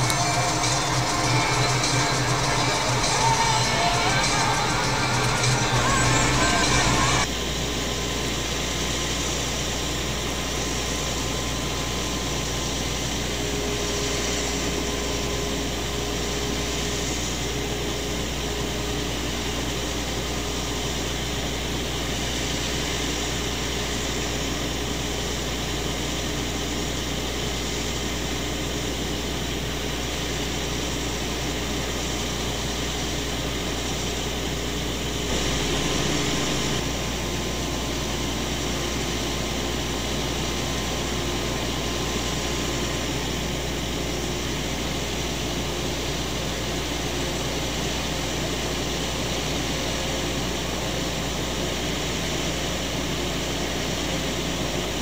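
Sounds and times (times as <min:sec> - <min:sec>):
tractor engine: 0:00.0 - 0:07.3, 0:35.1 - 0:36.8
combine harvester engine drone: 0:00.0 - 0:55.0.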